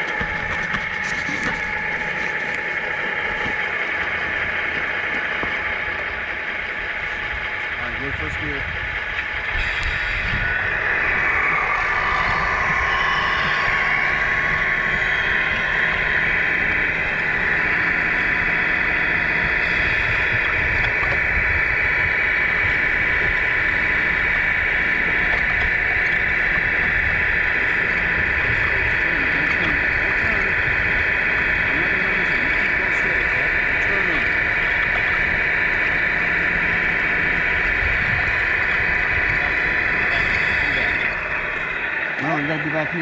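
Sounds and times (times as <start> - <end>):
low rumble: 0.0 - 43.0
toy truck drivetrain whine: 8.8 - 43.0.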